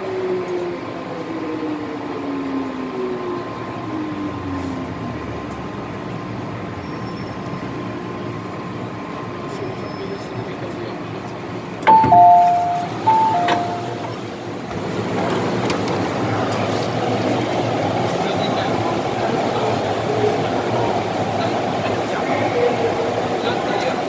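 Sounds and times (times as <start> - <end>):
two-tone door chime: 11.9 - 14.2.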